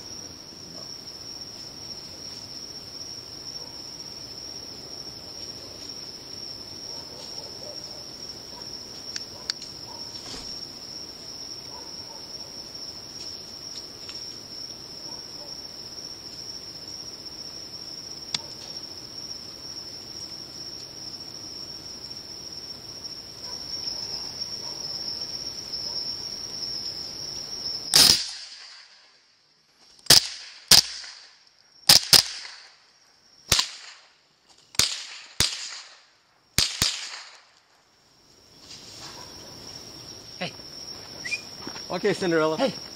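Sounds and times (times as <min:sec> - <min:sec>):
night insects chirring: 0:00.0 - 0:42.9
rifle shots: 0:34.8 - 0:36.0, 0:36.6 - 0:37.4.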